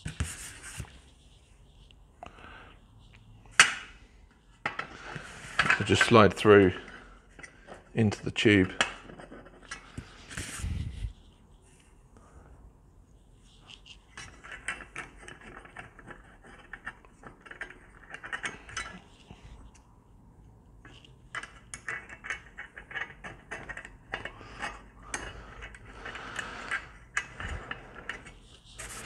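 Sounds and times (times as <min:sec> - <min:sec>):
small steel parts clicking and rattling: 0:13.7 - 0:19.4, 0:20.8 - 0:29.0.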